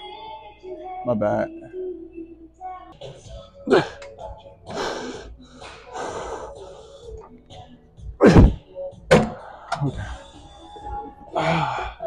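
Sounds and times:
weight stack heavy thuds: 8.3 - 9.9.

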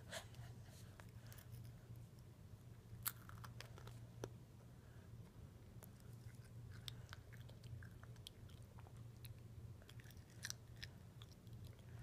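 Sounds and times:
toddler chewing crunchy snacks: 3.0 - 4.0, 5.8 - 12.0.

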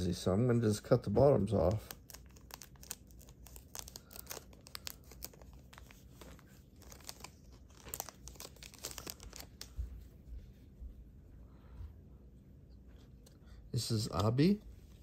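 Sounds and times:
card packets crinkling: 1.4 - 9.8
scissors cutting packets: 1.7 - 9.7.

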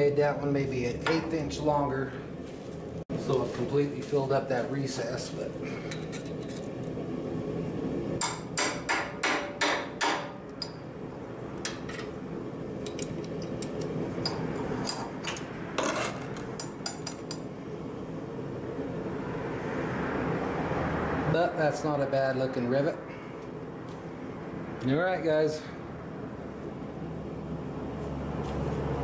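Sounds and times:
steady hum: 0.0 - 29.0
sharp metal knocks: 8.2 - 10.8.

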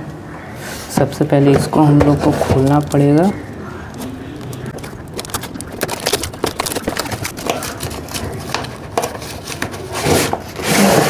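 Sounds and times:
tape crackling clicks: 2.6 - 9.7.

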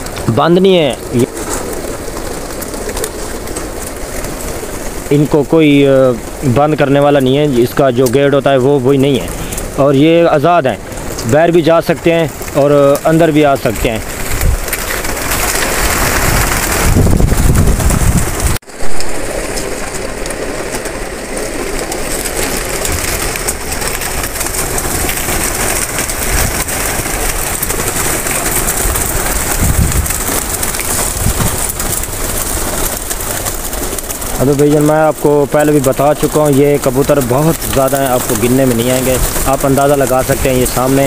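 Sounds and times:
pigeons cooing: 0.0 - 10.1, 19.1 - 41.0
wings flapping: 0.0 - 41.0.

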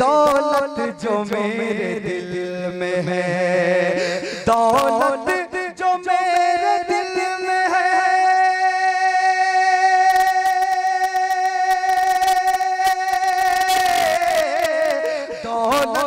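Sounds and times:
man singing into microphone: 0.0 - 16.0.

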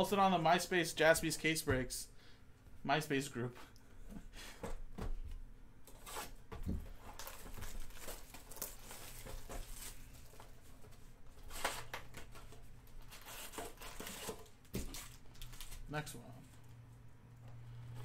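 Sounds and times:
plastic wrap crinkling and tearing: 7.0 - 10.6, 13.1 - 16.0.

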